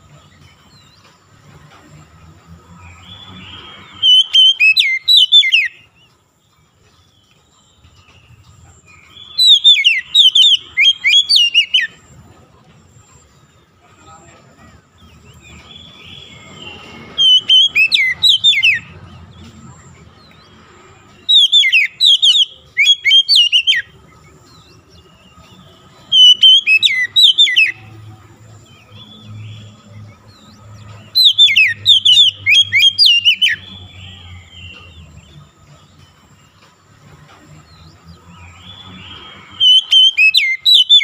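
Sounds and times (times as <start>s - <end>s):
bird singing whistled phrases: 3.0s - 5.9s, 9.0s - 12.0s, 15.3s - 19.0s, 21.2s - 24.9s, 26.1s - 27.9s, 31.1s - 35.1s, 38.6s - 41.0s.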